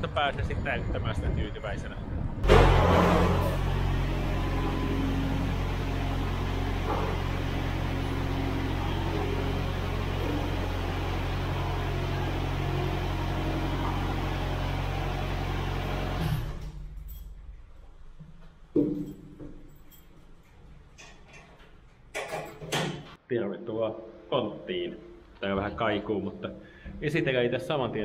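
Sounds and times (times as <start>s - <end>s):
small forestry machine engine running: 2.4s - 16.8s.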